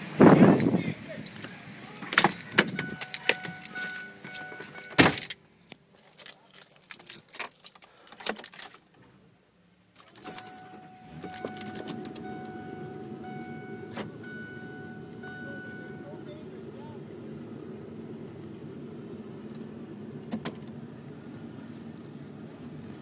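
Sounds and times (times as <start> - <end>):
car door shutting: 2.0 - 5.3, 10.1 - 16.4, 19.5 - 20.8
keys jangling: 2.2 - 5.4, 6.0 - 8.7, 10.0 - 12.2
electronic warning chime: 2.8 - 5.0, 10.2 - 16.4
low steady rumble: 9.2 - 23.0.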